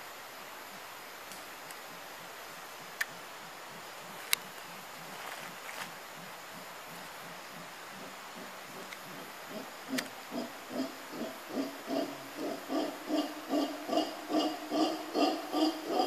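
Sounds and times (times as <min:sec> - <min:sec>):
howler monkey calling: 0:06.2 - 0:16.0.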